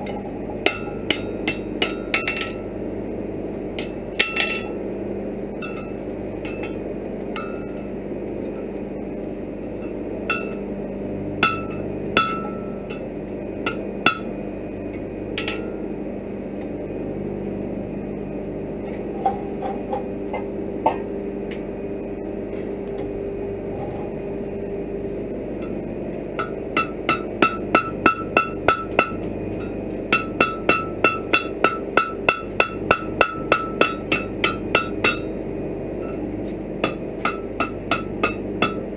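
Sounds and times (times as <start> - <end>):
hammer striking anvil: 0.6 - 2.7, 3.8 - 4.8, 5.6 - 6.8, 10.3 - 10.6, 11.4 - 13.1, 13.7 - 14.3, 15.4 - 16.0, 26.4 - 35.3, 36.8 - 38.8.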